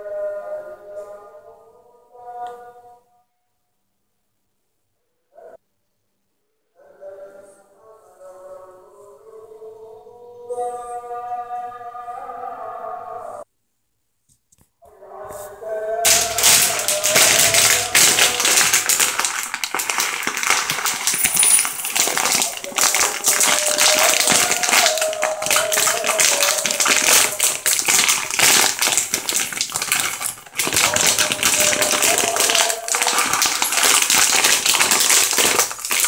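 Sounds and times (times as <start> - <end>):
lentils pattering into glass bowl: 16.0 - 36.0
plastic packet crinkling: 16.0 - 36.0.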